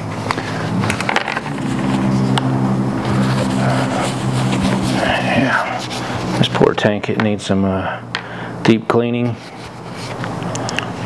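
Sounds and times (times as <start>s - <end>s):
vehicle engine running: 0.0s - 8.5s.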